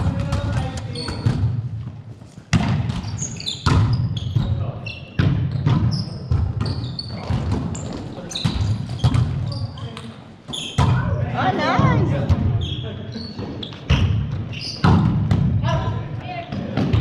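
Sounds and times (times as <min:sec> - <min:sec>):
volleyball slaps echoing in gym: 0:00.0 - 0:12.8, 0:13.4 - 0:17.0
sneakers squeaking on court: 0:00.2 - 0:01.5, 0:02.5 - 0:11.0, 0:12.6 - 0:15.3.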